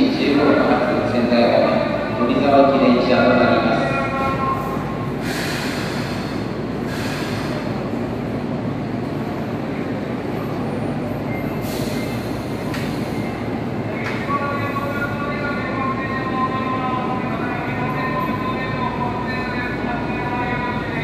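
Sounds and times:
subway train rumbling: 0.0s - 21.0s
short air hisses: 5.2s - 7.7s, 11.6s - 13.3s.

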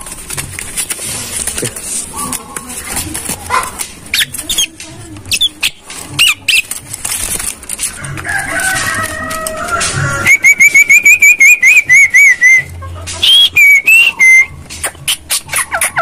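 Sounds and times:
wing flaps and clatters: 0.0s - 10.1s
myna whistles and squawks: 10.2s - 16.0s.

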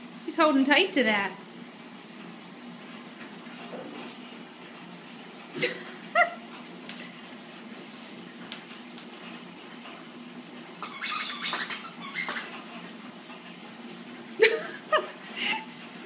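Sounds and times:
high squeaking: 10.8s - 12.7s.

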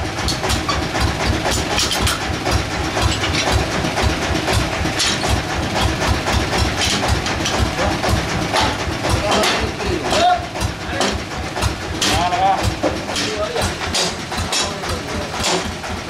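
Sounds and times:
sawmill engine idling: 0.0s - 16.0s.

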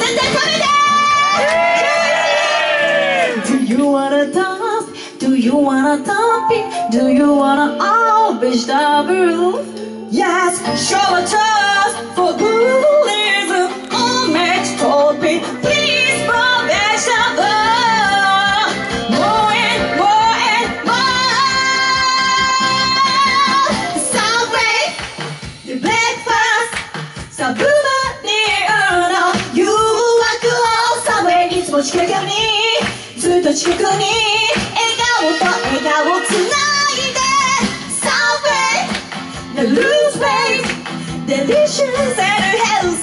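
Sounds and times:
women singing with vibrato: 0.0s - 43.0s
instrumental accompaniment: 2.8s - 30.1s.

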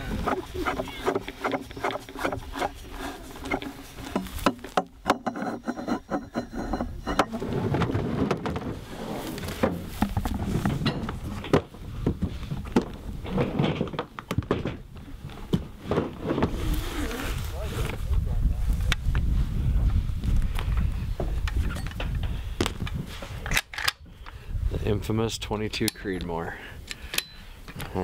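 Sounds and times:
gear rubbing and bumping: 0.0s - 18.1s.

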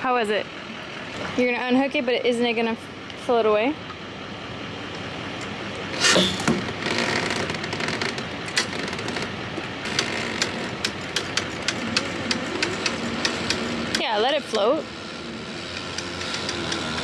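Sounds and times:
winch ratchet clicking: 6.8s - 17.0s.

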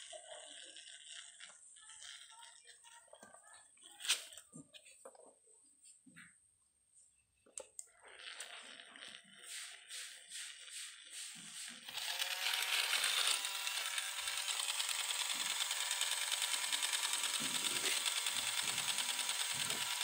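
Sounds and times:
toy sewing machine clattering: 0.0s - 4.3s, 11.8s - 20.0s.

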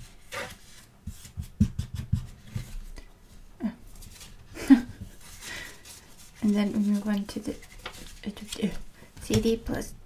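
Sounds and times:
paper booklet rustling and clicking: 5.2s - 9.8s.

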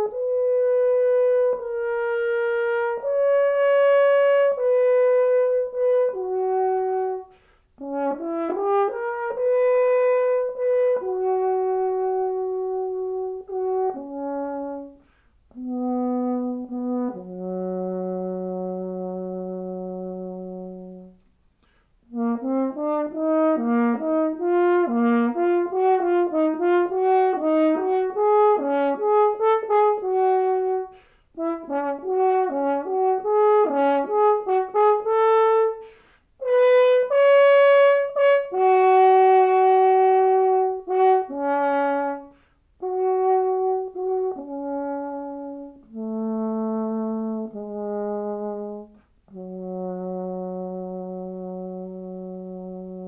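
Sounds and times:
solo french horn: 0.0s - 53.0s
player breathing: 7.3s - 7.8s, 30.9s - 31.4s, 35.8s - 36.4s.

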